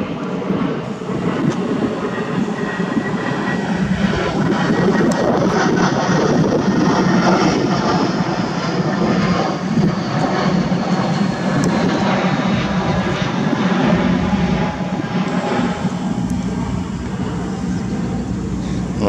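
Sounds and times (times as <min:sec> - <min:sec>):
airplane engine passing overhead: 0:00.0 - 0:19.0
faint high whine: 0:11.2 - 0:19.0.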